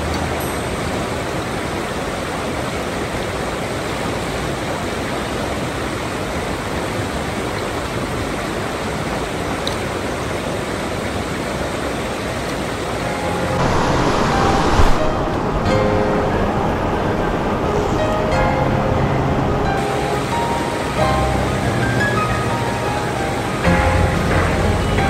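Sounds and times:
stream water rushing: 0.0s - 25.0s.

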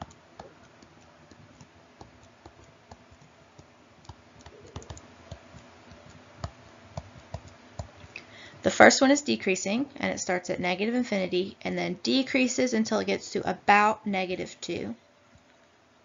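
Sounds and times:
stylus tapping on tablet screen: 0.0s - 8.0s
low steady hum: 0.0s - 16.0s.

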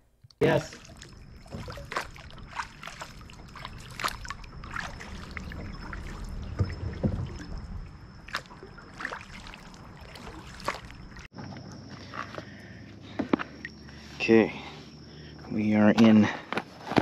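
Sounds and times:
water splashes and drips: 0.4s - 12.2s.

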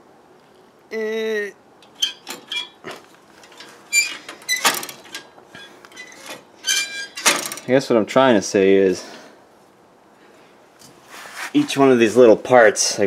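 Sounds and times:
person humming: 0.9s - 1.6s.

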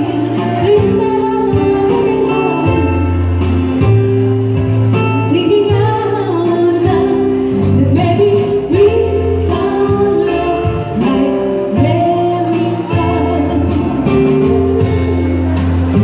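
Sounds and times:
woman singing into a microphone: 0.0s - 3.3s, 5.0s - 16.0s
keyboard accompaniment with drum beat: 0.0s - 16.0s.

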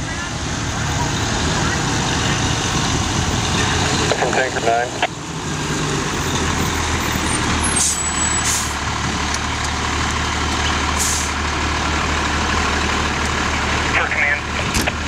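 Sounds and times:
diesel engine running: 0.0s - 15.0s
air brakes hissing: 7.7s - 8.8s, 11.0s - 11.4s.

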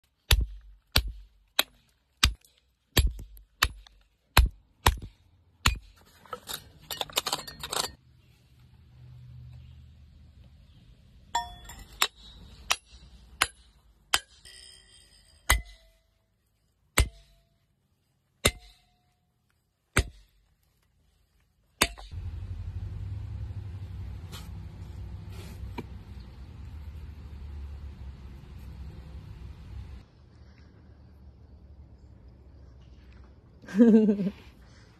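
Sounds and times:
hammer striking steel wedge: 0.3s - 6.0s, 11.4s - 16.1s, 17.0s - 17.5s, 18.4s - 19.1s, 19.9s - 20.4s, 21.8s - 22.2s
low rumbling noise: 22.2s - 32.5s.

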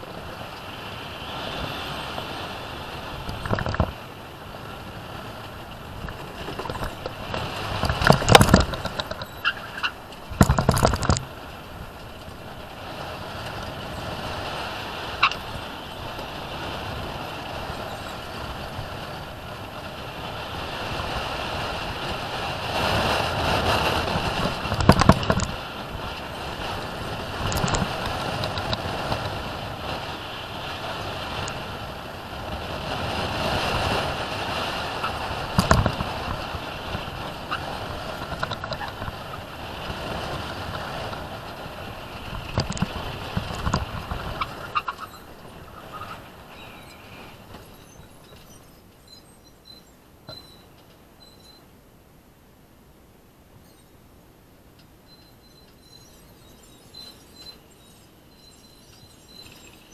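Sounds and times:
wheels rolling and rushing air: 0.0s - 51.8s, 53.2s - 59.9s
car body rattling and knocking: 6.0s - 11.4s.

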